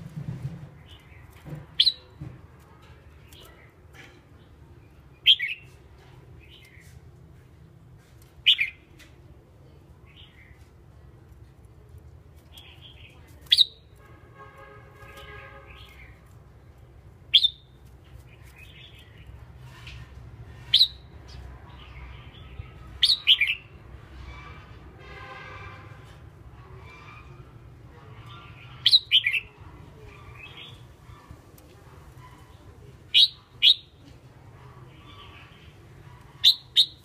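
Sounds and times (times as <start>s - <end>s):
bird chirping: 17.3s - 17.8s, 20.6s - 23.7s, 28.3s - 29.6s, 33.1s - 34.0s, 35.0s - 37.0s.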